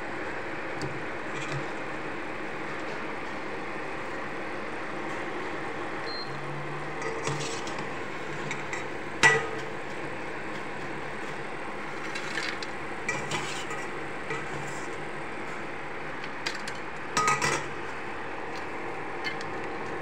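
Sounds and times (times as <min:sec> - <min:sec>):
background hiss and hum: 0:00.0 - 0:20.0
metal utensils clinking on dishes: 0:17.2 - 0:17.7.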